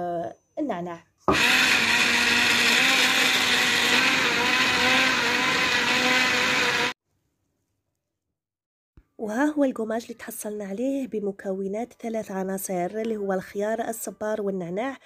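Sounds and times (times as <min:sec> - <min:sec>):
electric blender running: 0:01.3 - 0:07.0.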